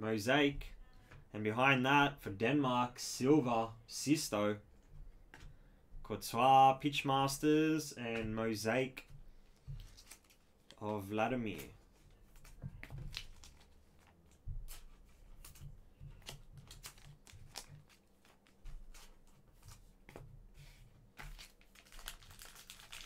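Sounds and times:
plastic wrapper crinkling and tearing: 9.8s - 10.9s, 12.2s - 18.9s, 21.2s - 23.0s.

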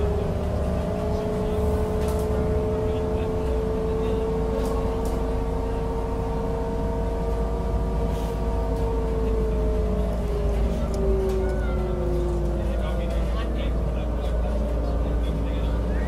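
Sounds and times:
bus engine rumble: 0.0s - 16.0s
rising whine: 0.0s - 16.0s.

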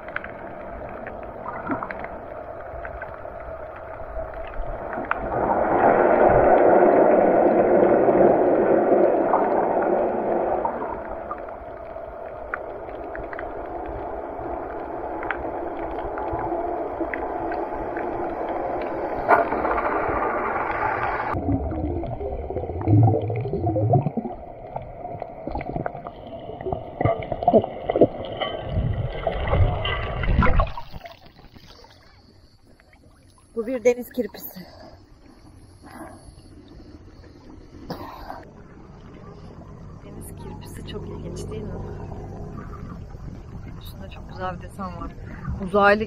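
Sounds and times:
small clicks underwater: 0.0s - 5.4s, 10.6s - 20.8s
underwater rush of water: 0.0s - 46.0s
water bumps and gurgles: 0.0s - 46.0s.

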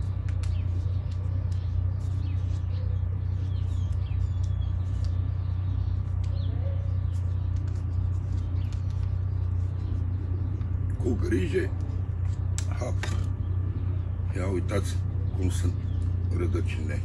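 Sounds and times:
faint bird chirps: 0.0s - 12.1s
steady low hum: 0.0s - 17.0s.

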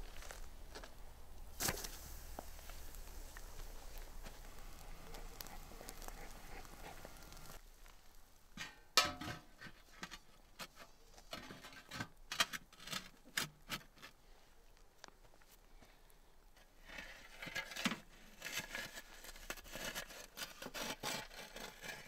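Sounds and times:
faint hiss: 0.0s - 10.1s.

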